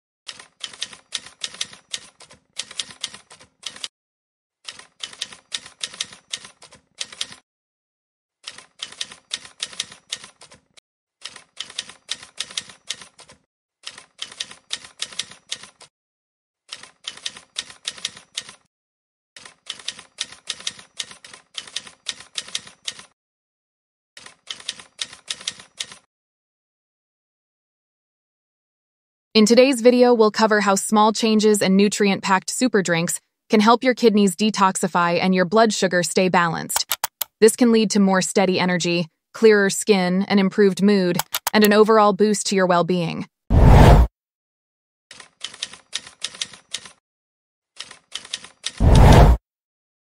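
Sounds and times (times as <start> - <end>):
typewriter key clacks: 0.3 - 3.9, 4.6 - 7.4, 8.4 - 15.9, 16.7 - 18.6, 24.2 - 26.0, 36.8 - 37.3, 41.2 - 41.7, 45.1 - 47.0, 47.8 - 48.8.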